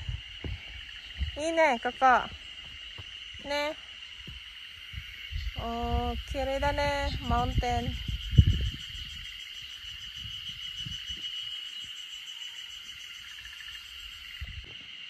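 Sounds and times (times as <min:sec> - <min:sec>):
soft low thumps: 0:00.0 - 0:08.8
insects buzzing: 0:00.0 - 0:15.0.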